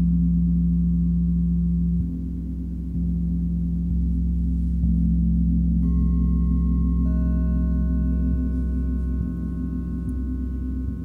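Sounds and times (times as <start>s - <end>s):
gong low pulsing wash: 0.0s - 11.0s
singing bowl struck softly: 0.0s - 11.0s
singing bowls ringing: 2.9s - 11.0s.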